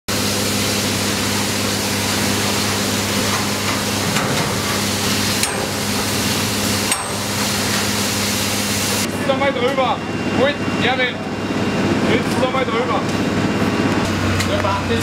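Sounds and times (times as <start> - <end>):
pump humming: 0.1 - 9.1.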